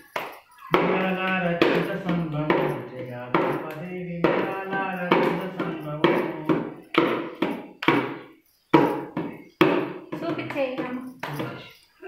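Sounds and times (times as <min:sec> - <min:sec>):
hand drum beating: 0:00.0 - 0:11.6
person chanting: 0:00.5 - 0:07.6.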